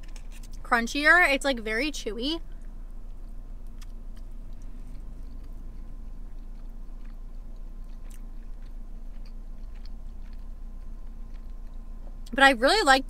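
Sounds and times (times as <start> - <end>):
low hum in car cabin: 0.0 - 13.0
person chewing: 2.5 - 12.3.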